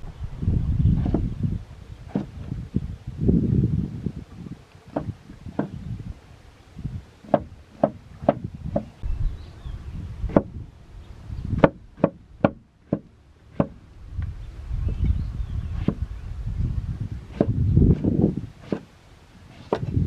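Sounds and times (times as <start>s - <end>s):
blade chopping wood: 17.3s - 18.9s.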